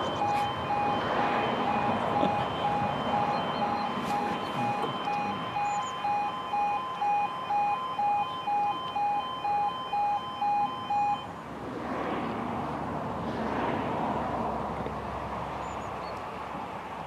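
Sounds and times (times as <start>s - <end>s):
two-tone crossing warning alarm: 0.0s - 11.3s.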